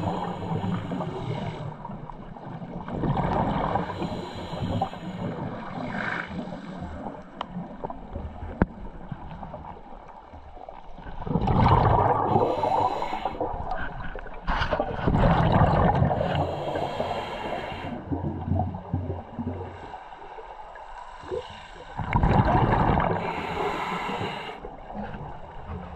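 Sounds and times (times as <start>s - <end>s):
murky underwater background: 0.0s - 25.9s
exhaled bubbles bursting: 11.1s - 12.9s, 14.7s - 16.4s, 22.0s - 23.2s
regulator inhalation hiss: 12.4s - 13.4s, 16.3s - 18.0s, 23.2s - 24.6s.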